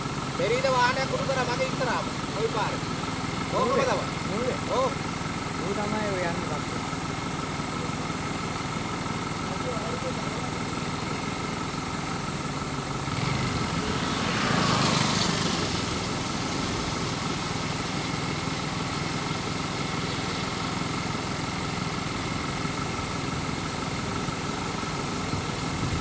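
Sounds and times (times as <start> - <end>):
motorcycle engine passing: 10.0 - 26.0.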